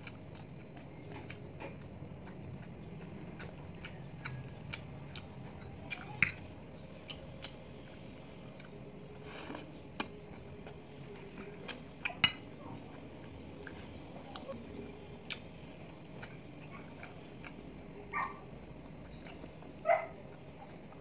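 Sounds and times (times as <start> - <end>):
chewing: 0.0 - 21.0
dog yip: 18.1 - 18.4.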